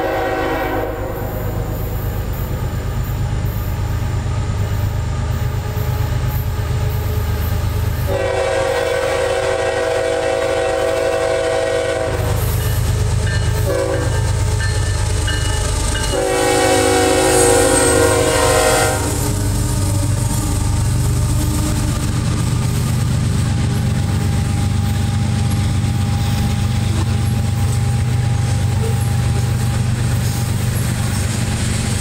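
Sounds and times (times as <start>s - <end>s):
locomotive horn blast: 0.0s - 2.0s, 8.0s - 12.7s, 13.6s - 14.3s, 16.1s - 20.2s
diesel locomotive engine rumble: 0.0s - 32.0s
rail cars rolling: 0.0s - 32.0s.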